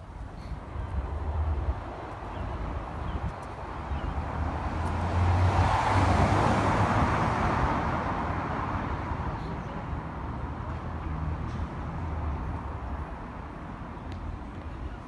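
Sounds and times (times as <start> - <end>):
street traffic: 0.0 - 15.0
vehicle passing: 4.4 - 9.1.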